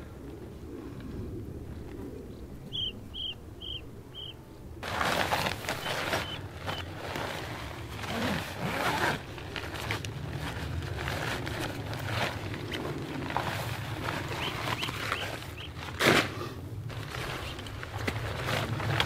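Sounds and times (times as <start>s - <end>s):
steady low rumble: 0.0s - 19.0s
rustling and scraping handling: 4.8s - 19.0s.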